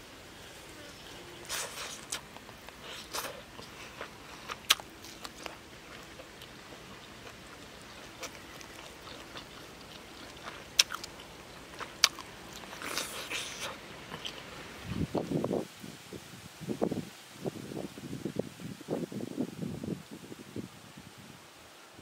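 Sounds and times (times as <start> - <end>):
person chewing food: 1.5 - 15.1.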